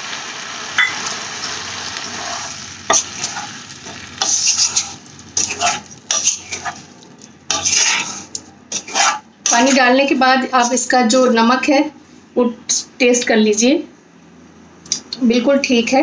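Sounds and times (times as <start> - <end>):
liquid sizzling in hot oil: 0.0 - 9.9
spatula scraping a wok: 0.8 - 11.0.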